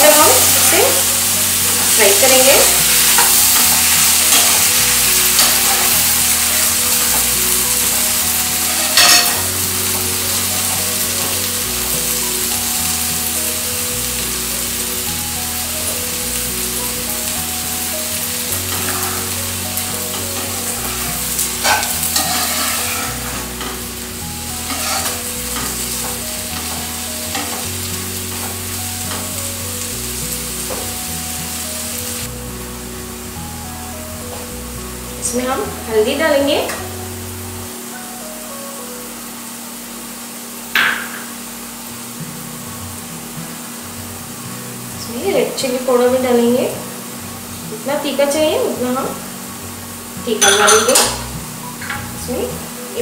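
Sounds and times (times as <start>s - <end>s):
onions and tomatoes sizzling: 0.0s - 53.0s
spatula stirring and scraping: 20.1s - 23.8s, 24.6s - 25.8s.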